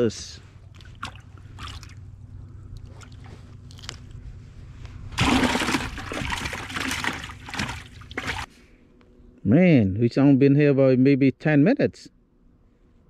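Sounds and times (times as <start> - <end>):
fish splashing in bucket of water: 0.7 - 2.0, 5.2 - 8.5.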